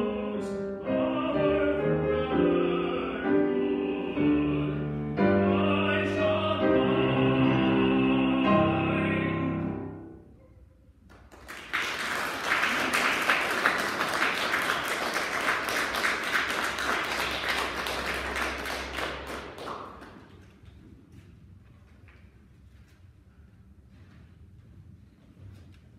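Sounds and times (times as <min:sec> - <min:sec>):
man singing classical song: 0:00.0 - 0:10.1
grand piano: 0:00.0 - 0:25.9
audience applauding: 0:11.1 - 0:20.6.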